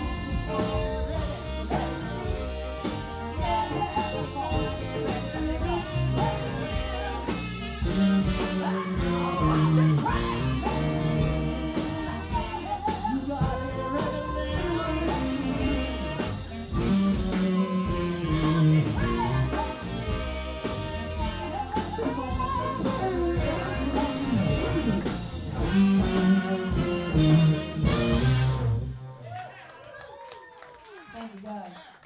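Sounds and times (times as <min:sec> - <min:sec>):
women singing: 0:00.0 - 0:27.3
drum kit: 0:00.0 - 0:29.2
electric guitar: 0:00.0 - 0:29.2
keyboards: 0:00.0 - 0:29.2
bass: 0:00.0 - 0:29.7.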